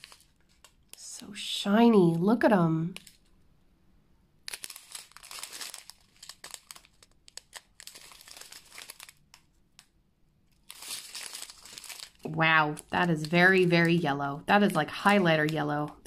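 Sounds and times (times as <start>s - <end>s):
plastic bags crinkling: 0.0s - 1.0s, 3.0s - 3.3s, 4.4s - 9.9s, 10.5s - 16.0s.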